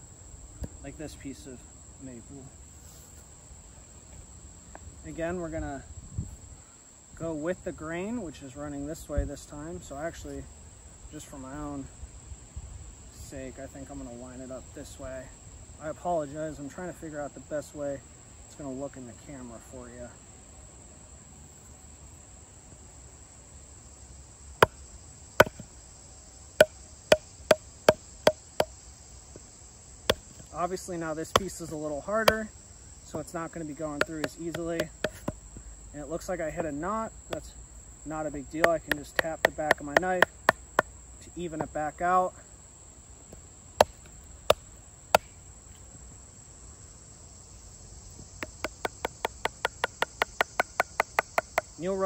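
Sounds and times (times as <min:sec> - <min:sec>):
insects buzzing: 0:00.0 - 0:52.0
baton knocking on knife spine: 0:25.4 - 0:25.7, 0:26.6 - 0:28.7, 0:31.4 - 0:32.4, 0:34.0 - 0:35.4, 0:38.6 - 0:40.9
wooden baton tapping knife: 0:34.0 - 0:35.4, 0:38.6 - 0:40.6.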